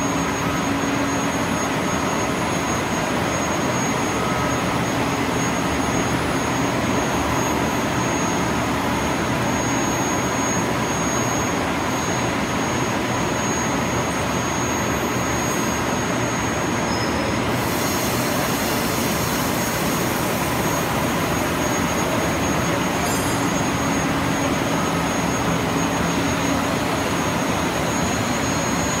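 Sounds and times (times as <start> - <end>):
loud machinery noise: 0.0 - 29.0
bright hiss: 17.6 - 21.7.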